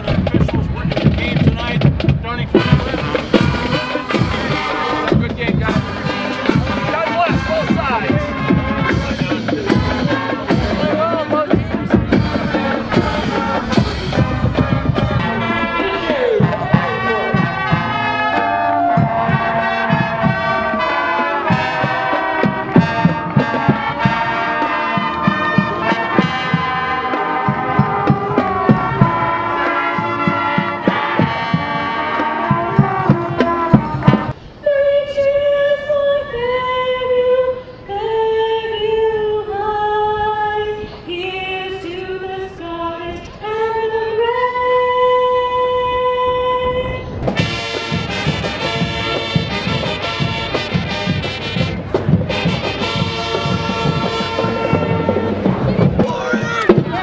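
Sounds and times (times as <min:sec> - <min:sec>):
marching band music: 0:00.0 - 0:34.4, 0:47.2 - 0:57.0
woman singing into microphone: 0:34.6 - 0:47.1.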